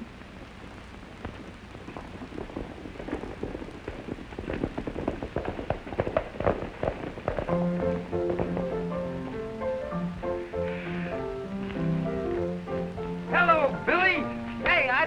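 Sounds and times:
horse galloping on dirt: 1.2 - 10.3.

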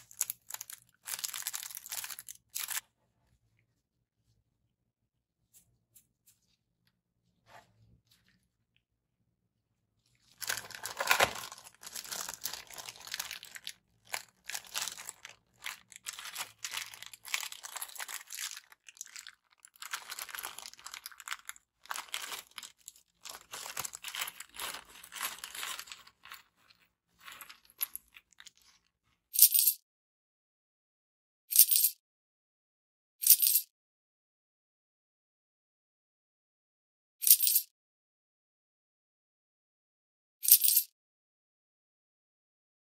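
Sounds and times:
plastic packaging crinkling: 0.0 - 2.8, 10.2 - 28.8.

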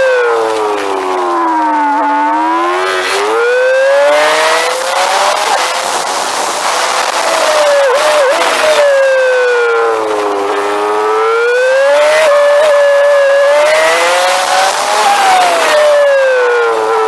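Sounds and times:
motorcycle engine accelerating: 0.0 - 17.0.

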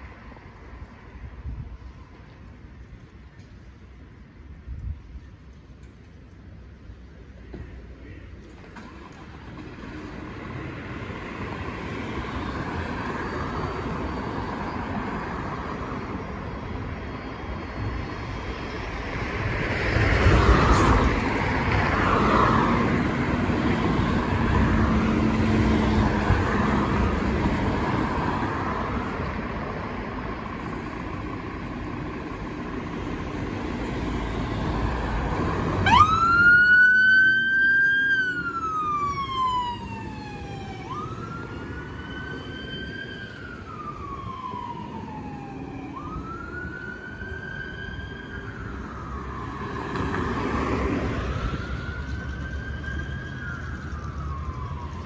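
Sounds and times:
wailing siren: 19.9 - 29.3, 30.4 - 55.0
diesel engine running: 22.9 - 36.5.

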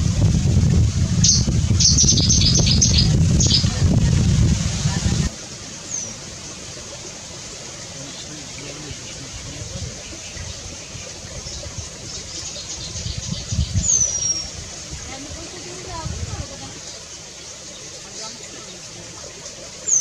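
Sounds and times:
steady low rumble: 0.0 - 5.3.

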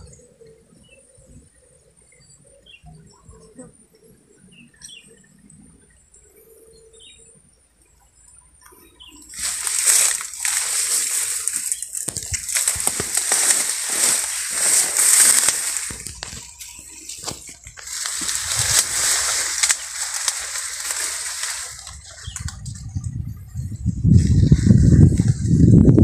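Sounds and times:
faint bird chirps: 0.0 - 9.8
leaves and grass rustling: 9.0 - 26.0.

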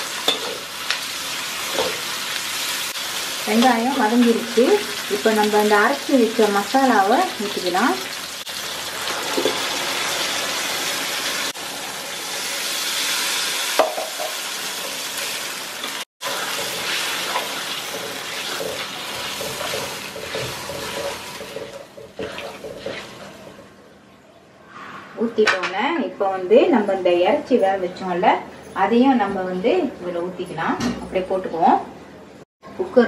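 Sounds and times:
paste sizzling in hot oil: 6.9 - 23.3
steel spatula stirring: 16.2 - 23.6.

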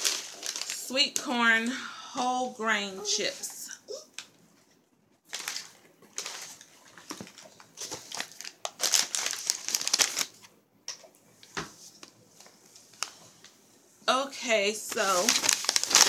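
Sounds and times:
snack bag crinkling: 0.0 - 0.9, 5.3 - 10.5, 15.0 - 16.0.

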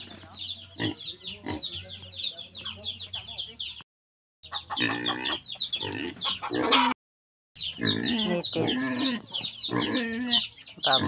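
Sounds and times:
chicken clucking: 4.4 - 7.0
pig grunting: 4.7 - 7.0, 7.8 - 11.0
small bird chirps: 7.6 - 11.0.

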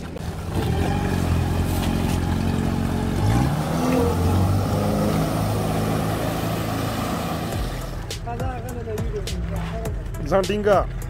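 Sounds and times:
jet ski engine revving: 0.0 - 8.2.

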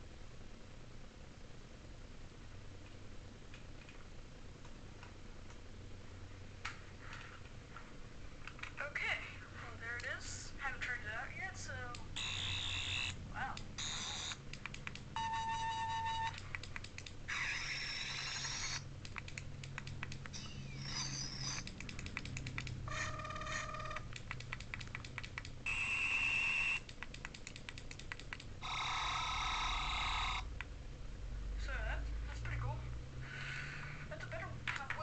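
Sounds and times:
toy electronic sound effects: 12.2 - 13.2, 13.8 - 14.4, 17.3 - 18.8, 20.3 - 21.8, 22.9 - 24.1, 25.7 - 26.9, 28.6 - 30.5
clicks: 13.6 - 15.1, 18.2 - 20.5, 21.4 - 22.8.

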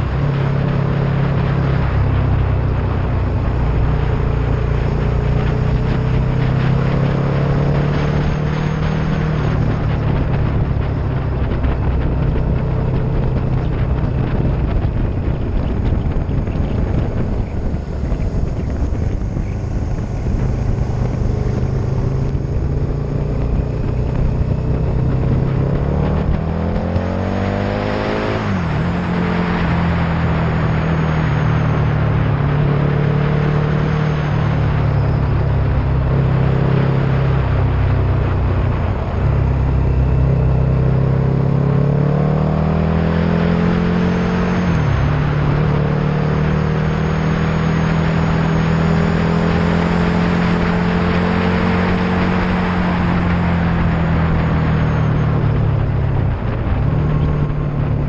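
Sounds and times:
passing traffic: 0.0 - 58.0
road and wind noise: 0.0 - 58.0
vehicle engine running: 0.0 - 58.0.

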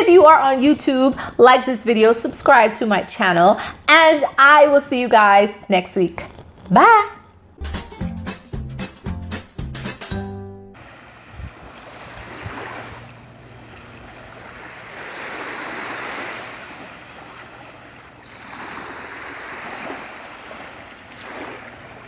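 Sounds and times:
small waves lapping on sand: 10.8 - 22.0.

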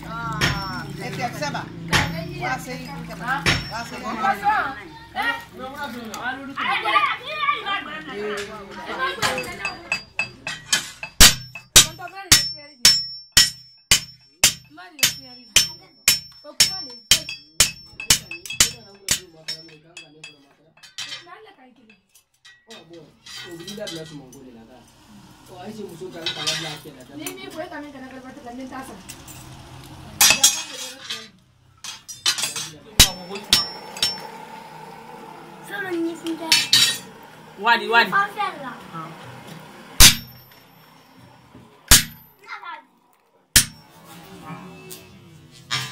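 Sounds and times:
hammer beating metal on anvil: 0.4 - 0.9, 1.9 - 2.3, 3.4 - 3.9, 9.2 - 21.2, 30.2 - 30.8, 31.9 - 34.3, 40.0 - 40.6, 41.9 - 42.3, 43.6 - 43.8.

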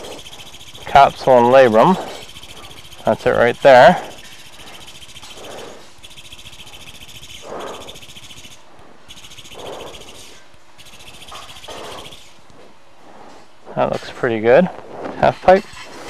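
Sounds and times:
surgical shaver high-pitched whine: 0.0 - 12.4.

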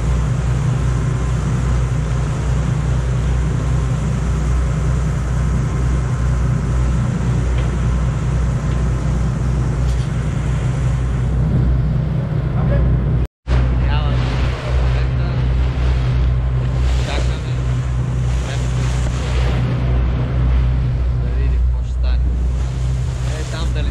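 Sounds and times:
boat engine droning: 0.0 - 23.9.

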